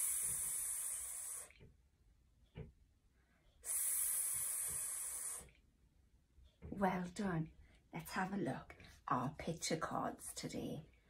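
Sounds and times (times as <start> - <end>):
woman hissing s sound: 0.0 - 1.6, 3.6 - 5.6.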